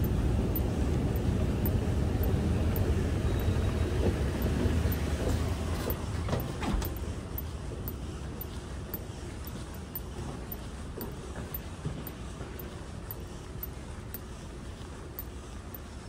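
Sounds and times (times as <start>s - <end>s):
moving vehicle interior rumble: 0.0s - 11.6s.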